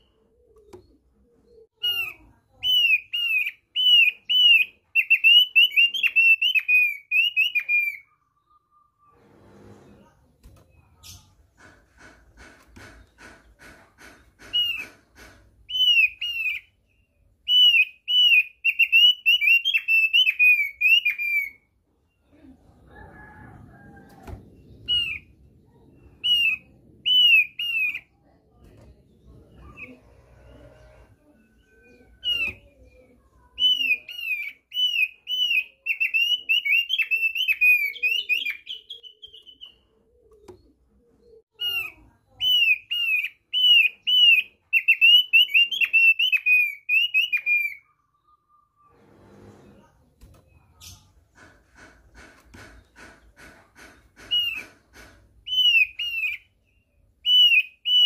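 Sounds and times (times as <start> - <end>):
bird singing high chirps: 15.7 - 22.3, 30.6 - 40.7, 55.5 - 58.0.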